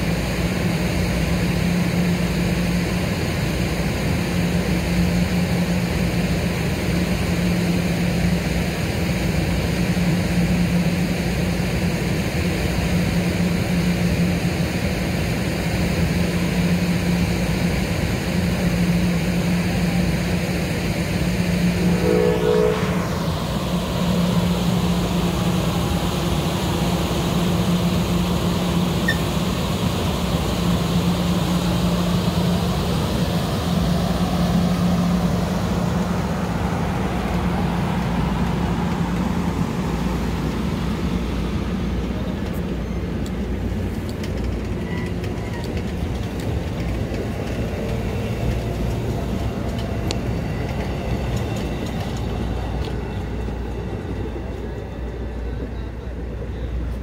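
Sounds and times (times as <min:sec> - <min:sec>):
train cars rumbling past: 0:00.0 - 0:57.0
low hum: 0:16.6 - 0:57.0.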